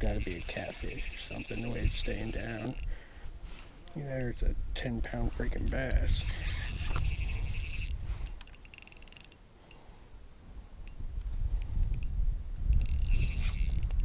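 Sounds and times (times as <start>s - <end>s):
fishing reel drag clicking: 0.1s - 2.9s, 5.9s - 9.3s, 12.8s - 14.0s.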